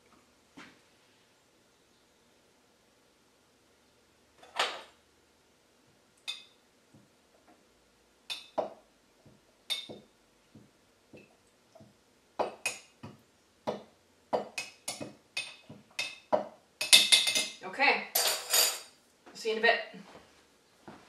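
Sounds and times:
glassware and dishes clinking: 0:09.7 - 0:10.0, 0:14.4 - 0:18.9.

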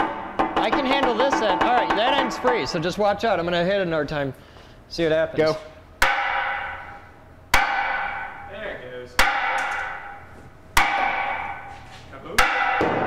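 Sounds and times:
sledgehammer striking steel: 0:00.0 - 0:03.0, 0:06.0 - 0:08.6, 0:09.2 - 0:13.0.

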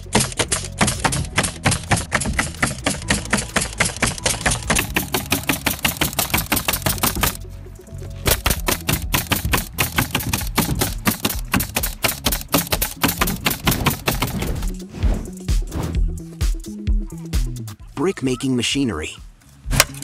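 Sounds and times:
nail gun firing: 0:00.0 - 0:07.4, 0:08.3 - 0:14.7.

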